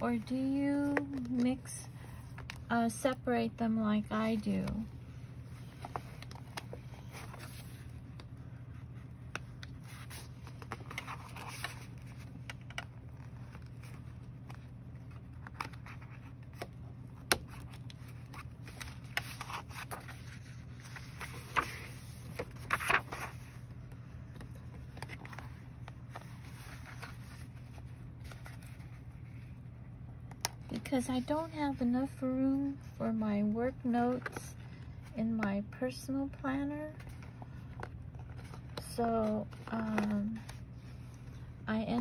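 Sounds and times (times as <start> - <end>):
steady low hum: 0.0 - 42.0
paper handling scrapes and taps: 39.6 - 40.5.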